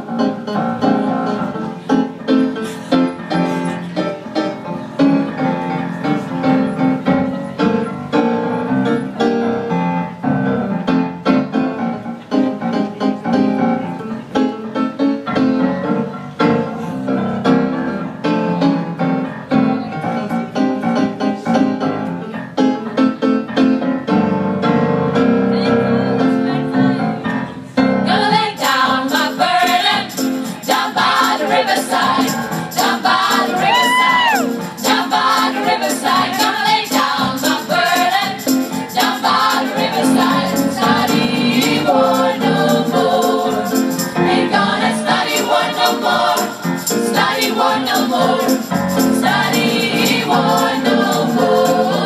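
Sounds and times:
female choir singing in harmony: 27.8 - 52.0.

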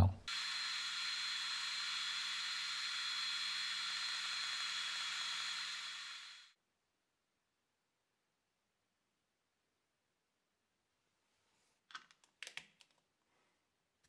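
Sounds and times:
laser engraver fan hiss: 0.3 - 6.5
thin high whine: 0.3 - 6.6.

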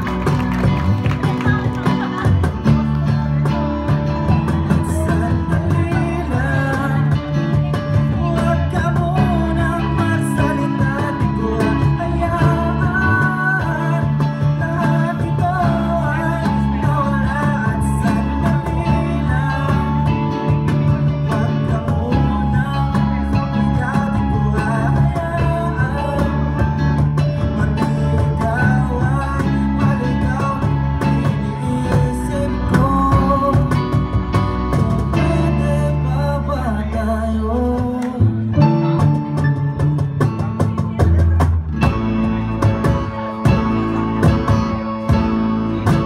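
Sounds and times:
acoustic guitar: 0.0 - 46.0
keyboard: 0.0 - 46.0
man singing: 2.1 - 46.0.

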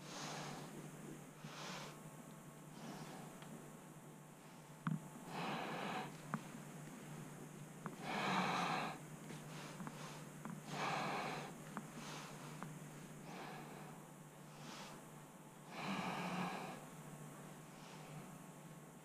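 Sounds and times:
low steady hum: 0.0 - 19.0
person breathing through nose: 8.0 - 15.0.

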